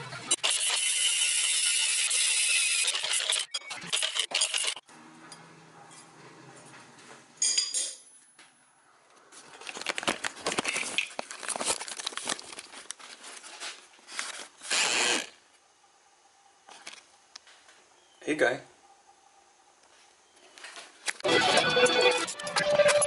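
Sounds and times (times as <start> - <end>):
angle grinder cutting steel: 0.2 - 4.8.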